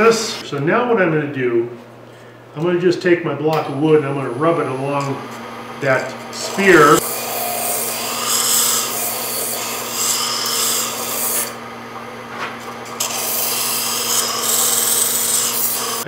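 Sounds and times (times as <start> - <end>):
lathe humming: 3.5 - 16.0.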